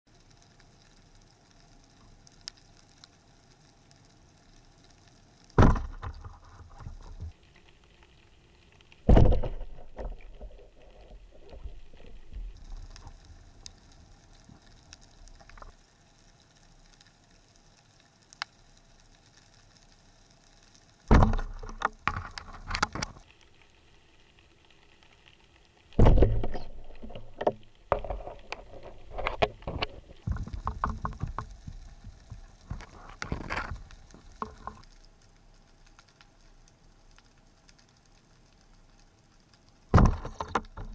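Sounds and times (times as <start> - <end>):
clicks and rattles: 21.1 - 23.2, 26.1 - 34.9, 39.9 - 40.9.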